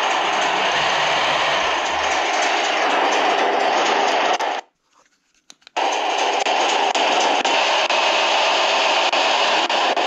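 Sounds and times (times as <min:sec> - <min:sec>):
simulated truck engine from speaker: 0:00.0 - 0:04.6
clicks: 0:03.8 - 0:05.9.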